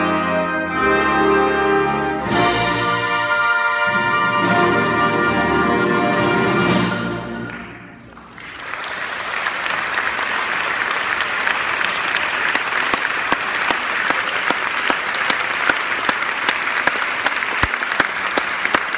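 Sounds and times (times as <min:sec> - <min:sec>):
audience applauding: 0:07.5 - 0:18.9.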